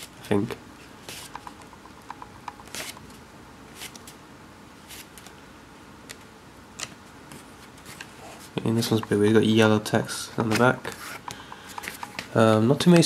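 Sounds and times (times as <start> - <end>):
book pages turning: 2.6 - 3.1, 3.7 - 4.2, 10.4 - 12.3.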